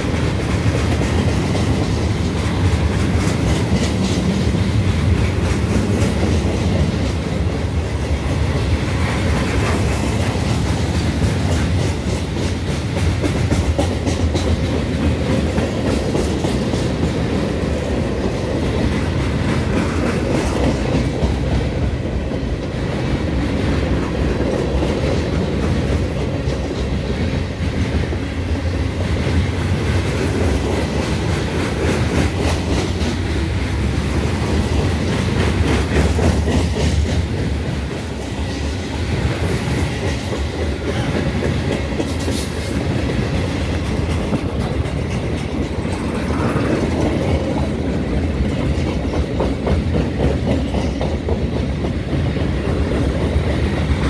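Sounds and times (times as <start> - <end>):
freight train rolling past: 0.0 - 54.0
wheels clicking over rail joints: 39.1 - 54.0.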